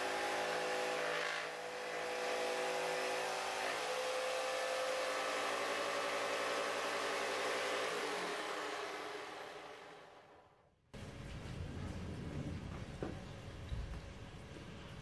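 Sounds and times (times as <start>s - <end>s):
jigsaw motor whine cutting wood: 0.0s - 10.5s.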